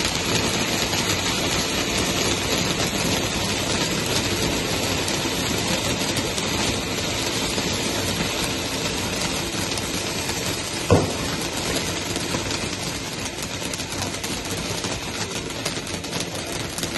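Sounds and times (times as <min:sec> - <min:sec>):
firework crackles: 0:00.0 - 0:16.9
firework fountain hissing: 0:00.0 - 0:16.9
short thump: 0:10.9 - 0:11.3.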